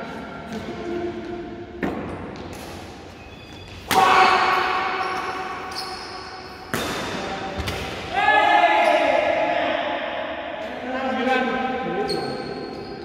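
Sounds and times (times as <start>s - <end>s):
racket hitting shuttlecock: 6.6s - 8.1s.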